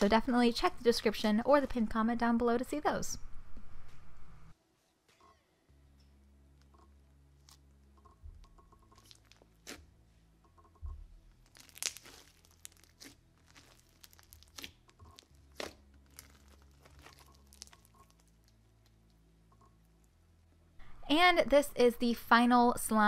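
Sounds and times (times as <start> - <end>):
slime crackling and popping: 8.9 - 9.8, 11.4 - 19.2.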